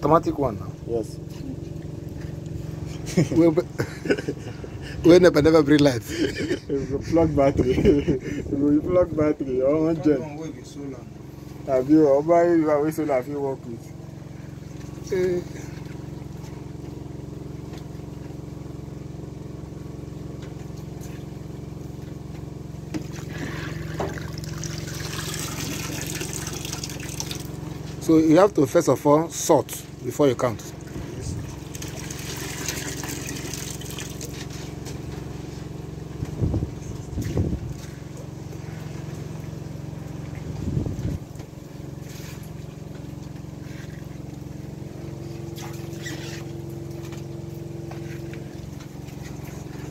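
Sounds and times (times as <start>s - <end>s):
low machine hum: 0.0s - 49.9s
small engine running: 0.0s - 49.9s
water splashing in tub: 22.8s - 27.9s, 30.7s - 34.8s, 45.4s - 47.7s.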